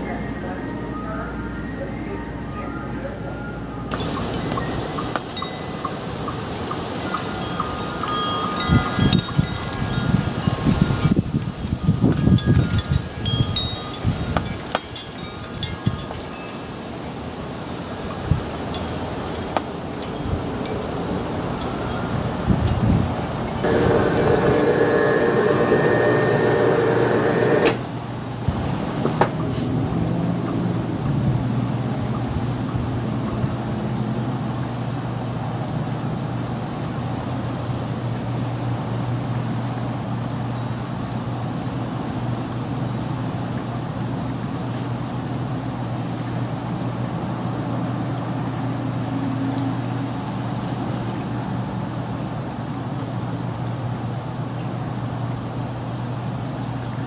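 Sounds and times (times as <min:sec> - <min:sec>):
high-pitched insect drone: 0:00.0 - 0:28.9
loud droning sound: 0:23.6 - 0:28.0.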